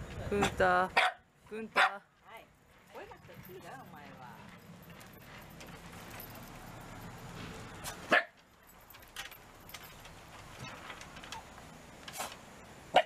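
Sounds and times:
dog barking: 1.0s - 1.2s, 1.8s - 2.0s, 8.1s - 8.4s.

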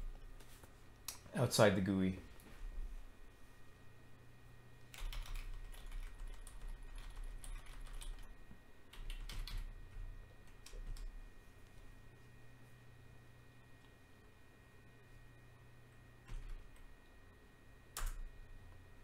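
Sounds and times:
computer keyboard keys tapping: 4.9s - 8.3s, 8.9s - 9.7s, 10.4s - 11.1s, 16.2s - 16.9s, 18.0s - 18.3s.

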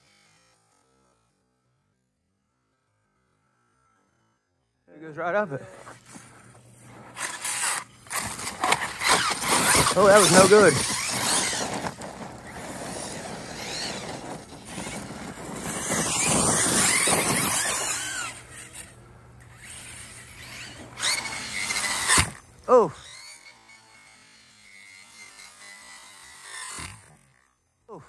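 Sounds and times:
rc truck motor whine: 0.0s - 28.0s
tyres throwing dirt: 5.6s - 18.8s, 19.5s - 23.2s.

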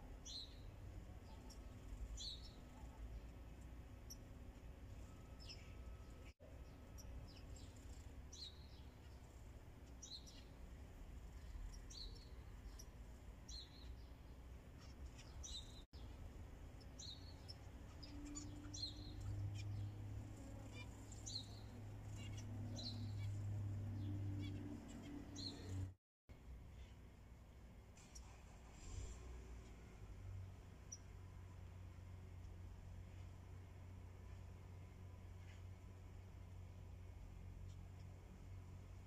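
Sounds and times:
low steady hum: 0.0s - 39.0s
finches chirping: 0.2s - 25.9s.

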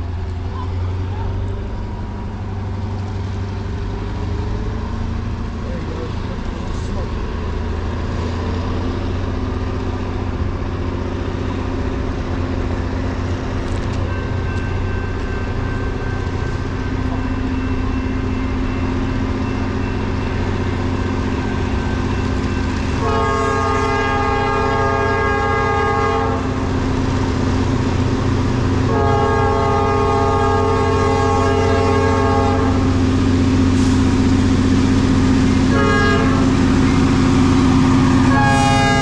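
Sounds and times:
locomotive low rumble: 0.0s - 39.0s
locomotive air horn: 23.0s - 26.6s, 28.9s - 33.0s, 35.7s - 36.8s, 38.1s - 39.0s.

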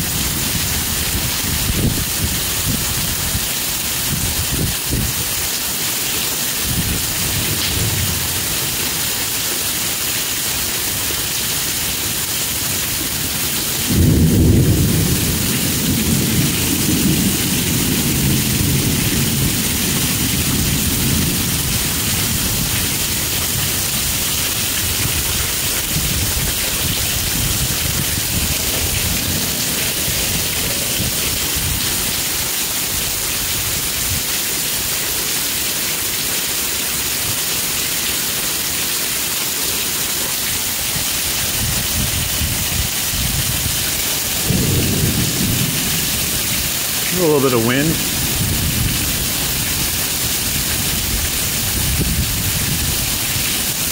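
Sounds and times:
heavy rain falling: 0.0s - 53.9s
thunderclap rumbling: 13.8s - 32.2s, 41.6s - 53.0s.

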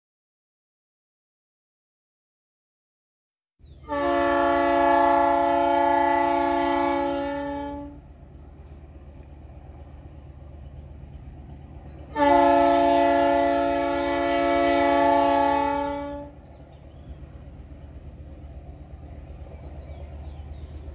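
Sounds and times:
locomotive air horn blasts: 3.8s - 8.1s, 12.1s - 16.4s.

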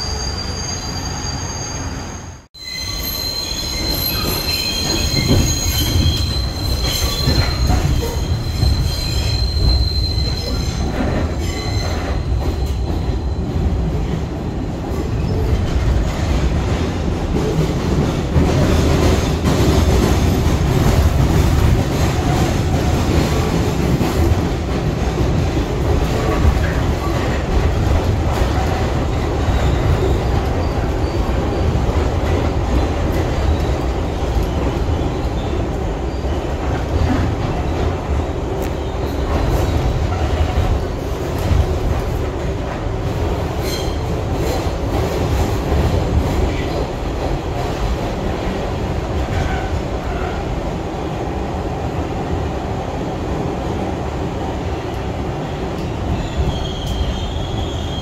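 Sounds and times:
high wheel squeal: 0.0s - 13.5s, 56.2s - 58.0s
subway train rumble: 0.0s - 58.0s.

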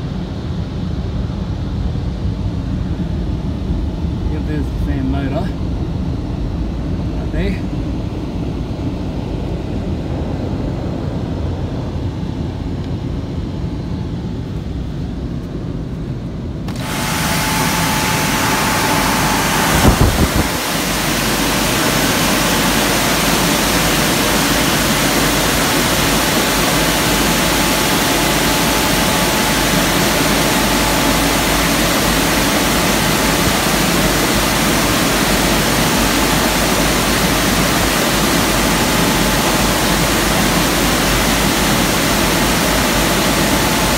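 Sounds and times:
dryer blowers rushing air: 0.0s - 43.9s.

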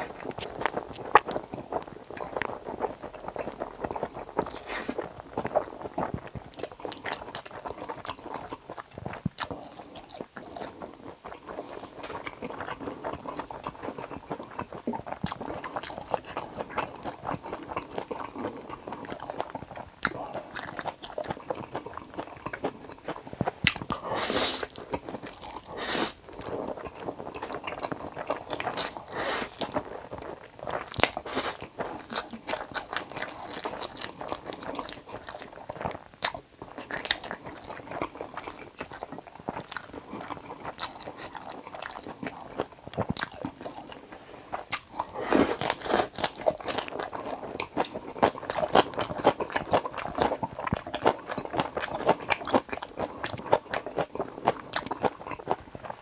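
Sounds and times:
wet chewing and crunching: 0.0s - 56.0s.

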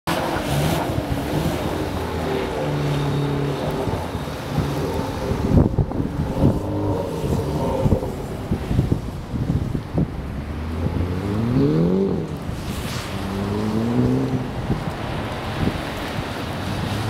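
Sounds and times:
wind buffeting microphone: 0.4s - 17.0s
diesel engine revving: 10.3s - 15.7s.

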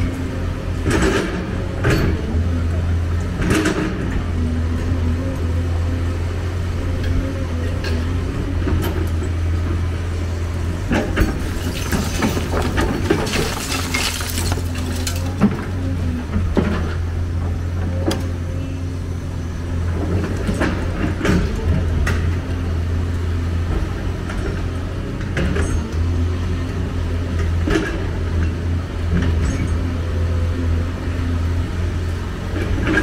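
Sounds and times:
excavator diesel engine running: 0.0s - 33.0s
rubble clattering: 11.2s - 15.8s.

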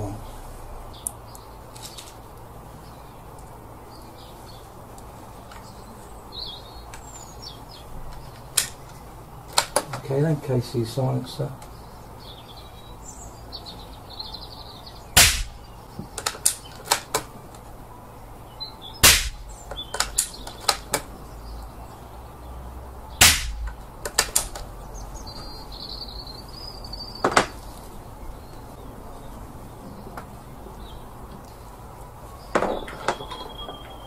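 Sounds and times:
birds chirping faintly: 0.0s - 34.0s
silenced air rifle shots: 15.2s - 17.3s, 19.0s - 21.0s, 23.2s - 24.6s.

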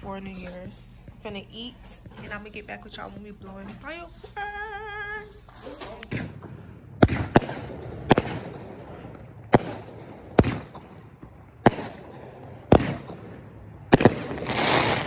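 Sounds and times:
fireworks bangs: 5.8s - 15.0s
fireworks hissing crackling burst: 14.2s - 15.0s.

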